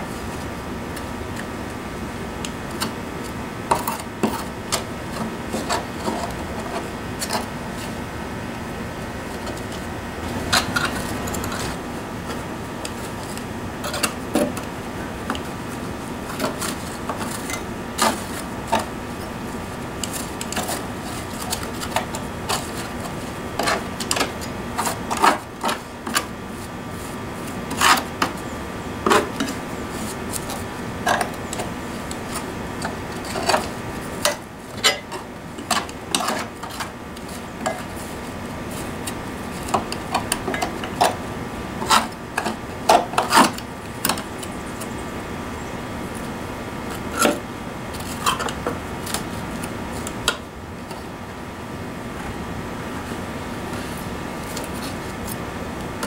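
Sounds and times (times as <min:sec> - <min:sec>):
hand scraper scraping mower deck: 0:02.4 - 0:08.0, 0:09.4 - 0:45.0.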